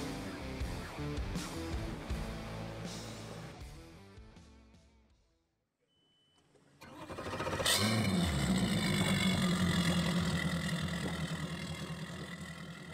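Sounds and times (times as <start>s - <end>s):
engine cranking and idling: 6.8s - 12.9s.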